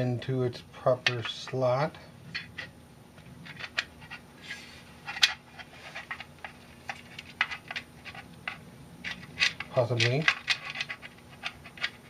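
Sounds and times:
metal parts clicking and tapping: 6.0 - 12.0.

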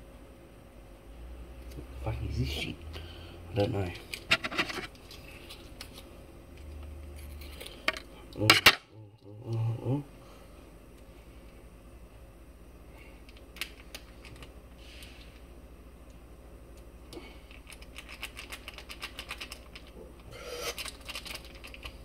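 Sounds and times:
plastic sachets crinkling: 20.6 - 22.0.

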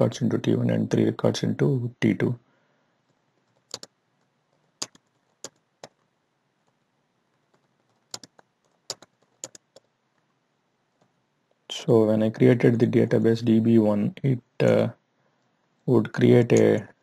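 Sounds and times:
computer keyboard key clicks: 3.5 - 3.9, 4.8 - 6.0, 7.5 - 9.9.

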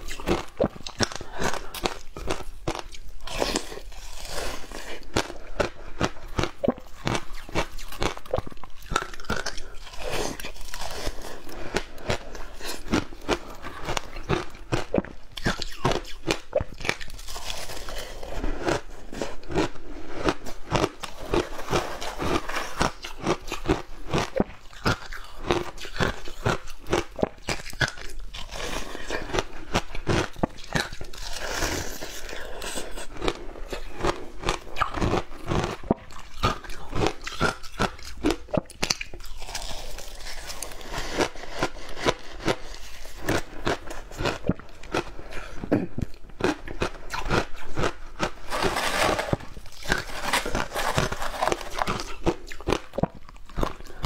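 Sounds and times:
shaved ice crunching: 48.5 - 52.2.

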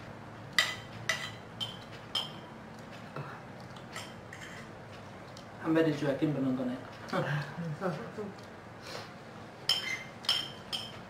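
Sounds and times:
spoon clinking against plate: 0.6 - 2.4, 9.7 - 11.0.

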